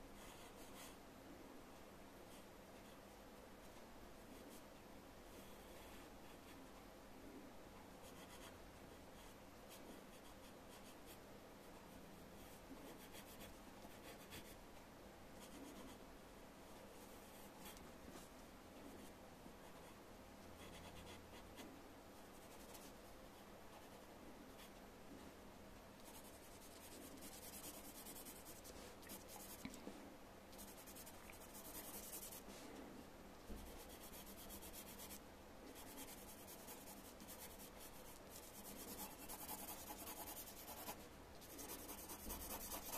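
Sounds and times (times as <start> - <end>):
pencil scratching on paper: 26.0 - 29.6, 30.6 - 32.5, 33.6 - 35.2, 35.8 - 42.9.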